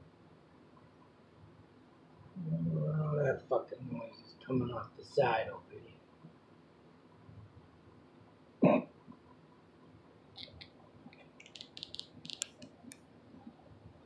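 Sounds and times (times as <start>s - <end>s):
man clearing his throat: 8.6s - 8.9s
light high clicks: 10.4s - 13.0s.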